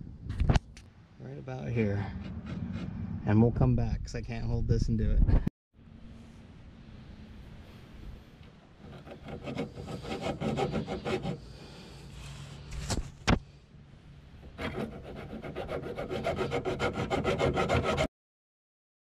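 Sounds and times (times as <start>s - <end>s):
handsaw cutting metal pipe: 8.9s - 11.4s, 14.6s - 18.1s.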